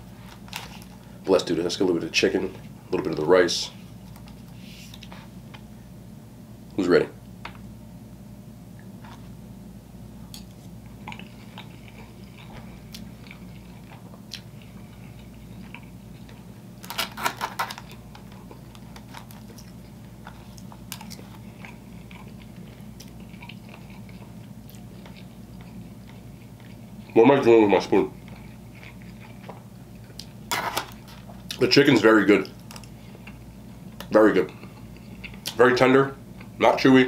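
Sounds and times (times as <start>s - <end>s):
steady low hum: 0.0s - 37.0s
close chewing: 10.8s - 16.5s, 17.6s - 27.2s, 28.1s - 30.4s.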